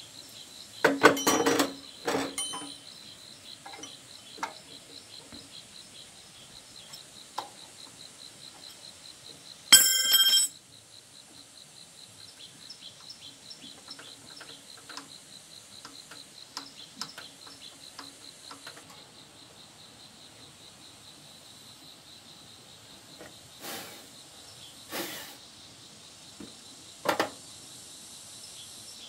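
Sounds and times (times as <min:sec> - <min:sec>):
insects chirping: 0:00.0 - 0:29.0
loud metallic ring: 0:09.7 - 0:10.5.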